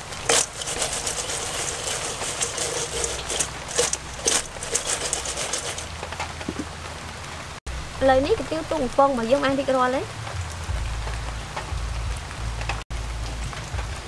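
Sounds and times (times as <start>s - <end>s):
fried bugs clattering in steel bowl: 0.0s - 6.1s
steady hiss: 0.0s - 8.7s.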